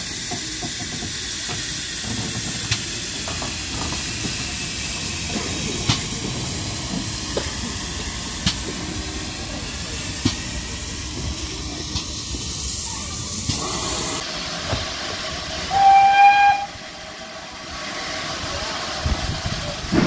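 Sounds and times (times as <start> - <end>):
steam hissing: 0.0 - 20.0
steam whistle: 15.7 - 16.8.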